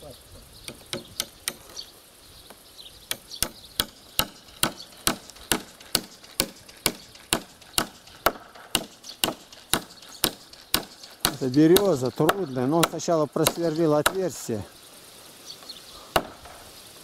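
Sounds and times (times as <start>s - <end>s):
hammer driving nail into log: 3.1s - 14.2s.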